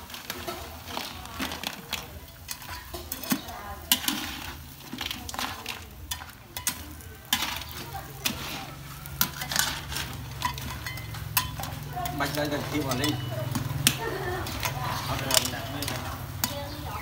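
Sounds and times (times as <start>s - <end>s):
metal spatula scraping wok: 0.0s - 17.0s
crab shells knocking against pan: 9.1s - 16.9s.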